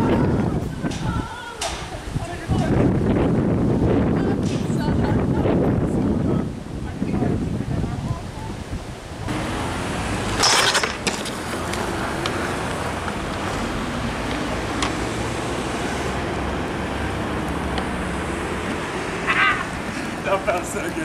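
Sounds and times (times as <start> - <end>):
road traffic rumble: 0.0 - 21.0
skateboard clatter: 10.3 - 11.6.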